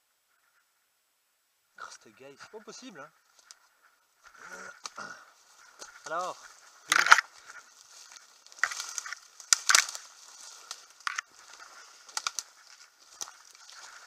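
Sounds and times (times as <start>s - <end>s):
branches snapping and brushing: 3.3s - 14.0s
leaf litter crunching underfoot: 4.4s - 14.0s.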